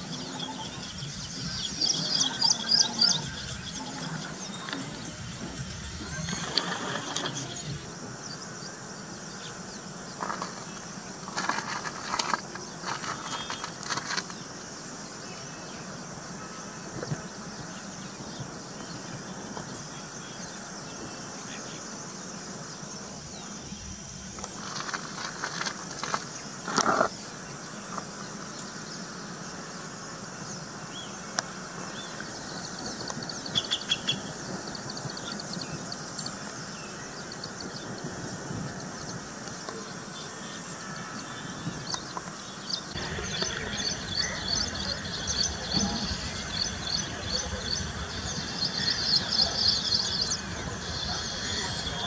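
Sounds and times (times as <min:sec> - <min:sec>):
bird chirps: 0:00.0 - 0:07.9, 0:32.0 - 0:36.4, 0:40.9 - 0:52.0
steady background hiss: 0:00.0 - 0:52.0.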